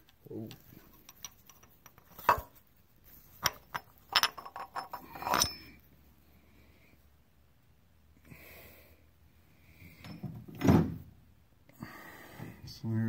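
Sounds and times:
metal tools clinking: 0.5 - 2.6, 3.3 - 5.8.

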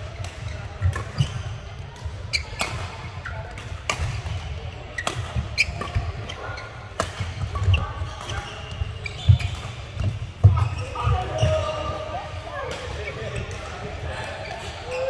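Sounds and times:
play from neighbouring courts: 0.0 - 15.0
racket hitting shuttlecock: 0.1 - 11.6.

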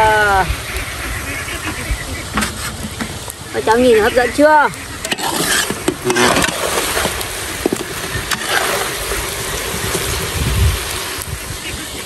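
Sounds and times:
glaze sizzling in a wok: 0.0 - 12.0
metal utensils scraping a wok: 2.3 - 3.2, 5.0 - 9.1.

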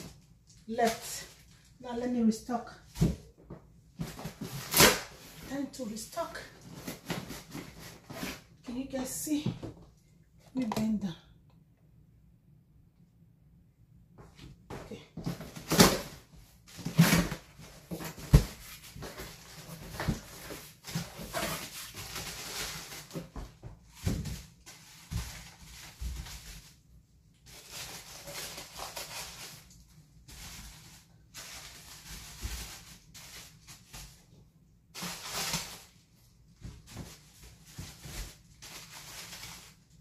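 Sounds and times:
plastic wrapping rustling: 0.0 - 1.8, 4.0 - 8.6, 15.3 - 40.0.

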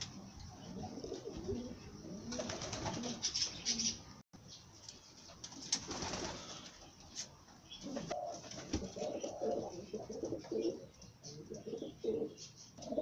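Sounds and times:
pigeons cooing: 0.6 - 4.1, 7.7 - 13.0.

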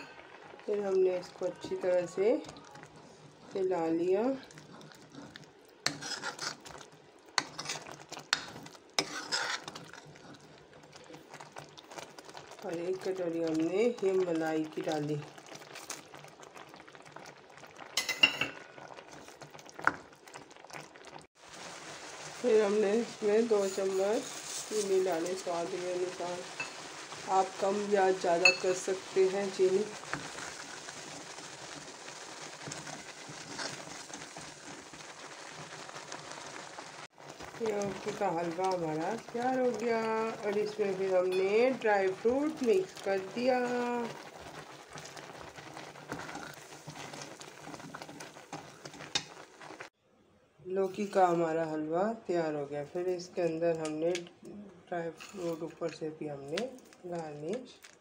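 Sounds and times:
food bubbling and sizzling: 0.0 - 50.0, 52.7 - 58.0
metal spoon stirring thick mixture: 0.6 - 20.8, 37.2 - 49.8
metal spoon scraping pan: 4.6 - 6.8, 7.4 - 10.4, 23.4 - 25.4.

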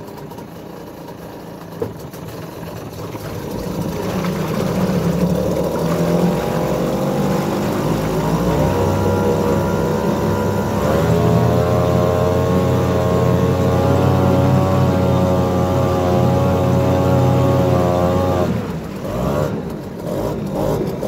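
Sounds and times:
outboard engine running: 0.0 - 21.0.

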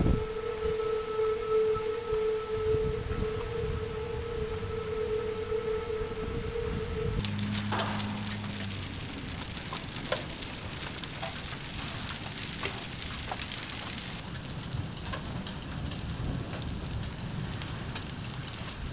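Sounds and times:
rain hissing: 0.0 - 18.9
hailstones striking concrete: 7.2 - 18.9.

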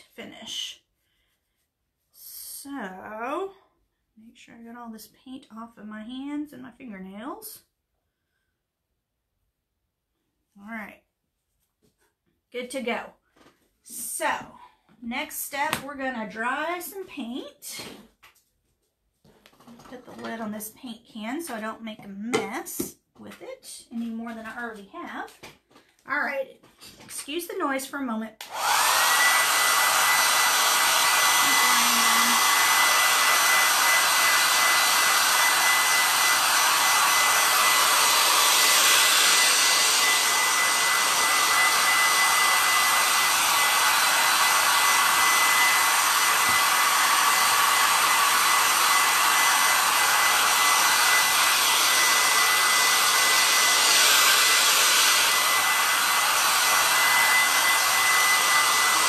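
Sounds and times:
hair dryer running: 15.3 - 16.4, 28.4 - 59.0.

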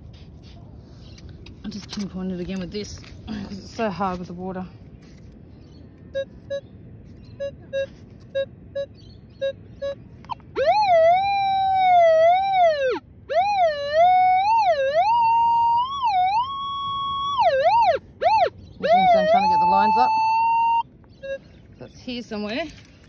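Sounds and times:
metal detector short beeps: 6.1 - 10.0
metal detector gliding tone: 7.4 - 12.4, 13.5 - 21.6.

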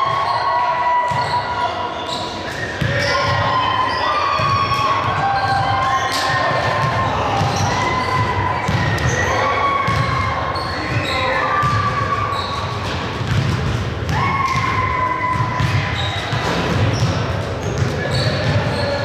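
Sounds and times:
players' voices: 0.0 - 19.0
sneakers squeaking: 0.0 - 19.0
basketball bouncing on court: 4.4 - 19.0.

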